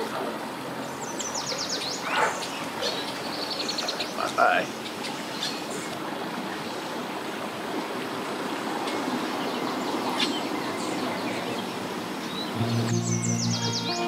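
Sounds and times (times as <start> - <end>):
outboard motor churning water: 0.0 - 13.0.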